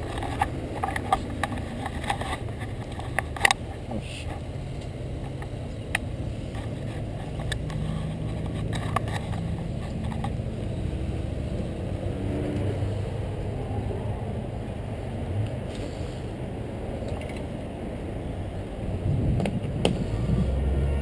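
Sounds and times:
motor traffic rumble: 0:00.0 - 0:21.0
bicycle clicks: 0:04.8 - 0:10.8.

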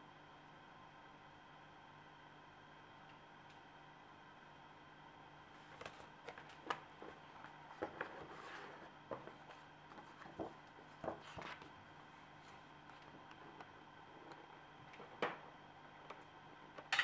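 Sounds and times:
paper rustle: 0:05.6 - 0:11.7.

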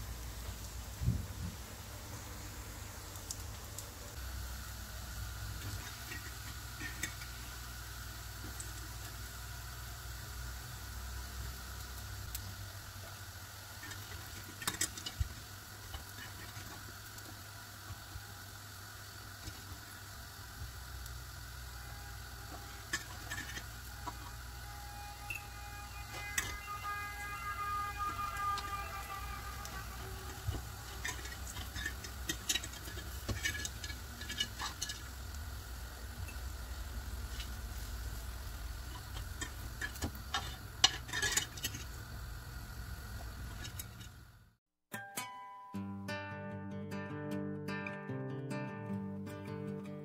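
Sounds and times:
low kitchen hum: 0:00.0 - 0:44.6
utensils clicking on grill pan: 0:05.5 - 0:07.6, 0:08.4 - 0:09.2, 0:13.8 - 0:18.2, 0:22.0 - 0:27.3, 0:29.6 - 0:35.4, 0:38.8 - 0:42.0.

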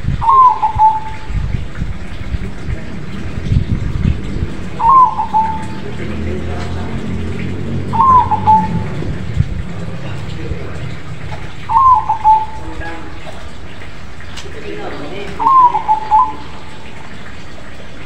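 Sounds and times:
steady low rumble: 0:00.0 - 0:14.2
dove cooing: 0:00.2 - 0:01.4, 0:04.6 - 0:06.1, 0:07.9 - 0:09.2, 0:11.6 - 0:13.5, 0:15.2 - 0:17.2.

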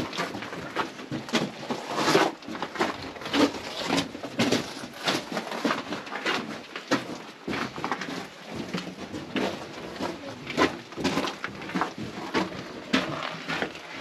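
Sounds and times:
footsteps crunching on gravel: 0:00.0 - 0:14.0.

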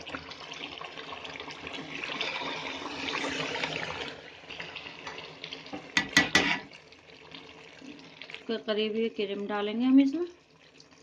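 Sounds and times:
curry sizzling in a pot: 0:00.0 - 0:11.0
ladle stirring: 0:01.7 - 0:06.8.

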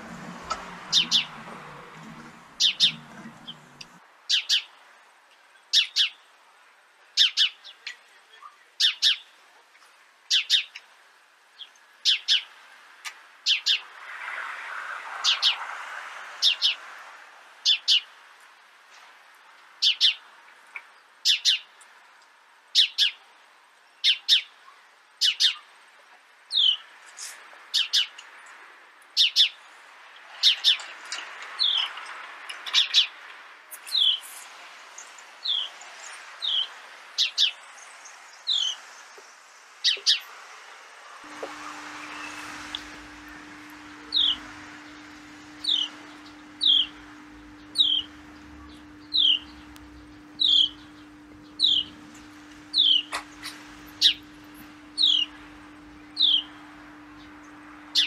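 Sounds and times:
sparrows chirping: 0:00.0 - 0:04.7, 0:05.6 - 0:06.3, 0:07.2 - 0:09.4, 0:10.3 - 0:10.9, 0:11.6 - 0:12.6, 0:13.4 - 0:14.0, 0:15.2 - 0:15.7, 0:16.3 - 0:16.8, 0:17.6 - 0:18.1, 0:19.8 - 0:20.2, 0:21.2 - 0:21.8, 0:22.8 - 0:23.2, 0:24.0 - 0:25.7, 0:26.5 - 0:26.9, 0:27.7 - 0:28.5, 0:29.2 - 0:29.6, 0:30.3 - 0:30.9, 0:31.6 - 0:32.0, 0:32.6 - 0:39.2, 0:39.8 - 0:40.3, 0:41.3 - 0:58.0
soft hiss: 0:33.3 - 0:58.0.

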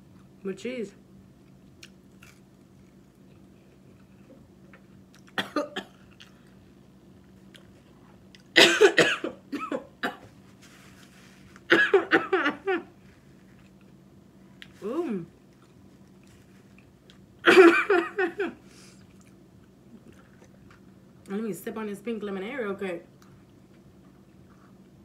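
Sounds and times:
woman coughing: 0:05.4 - 0:06.0, 0:08.6 - 0:10.2, 0:11.7 - 0:12.9, 0:17.4 - 0:18.6.

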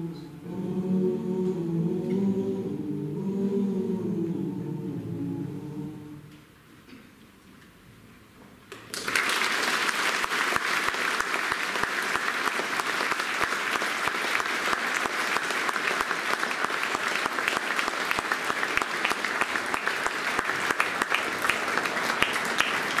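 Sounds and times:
audience applauding: 0:08.8 - 0:23.0.

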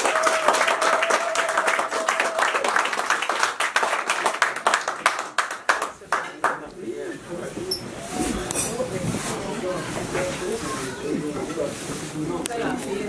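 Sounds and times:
people clapping: 0:00.0 - 0:06.8.

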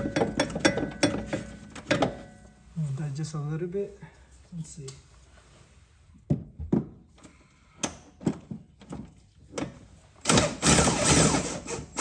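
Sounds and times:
metal knocks and clunks: 0:00.0 - 0:02.4.

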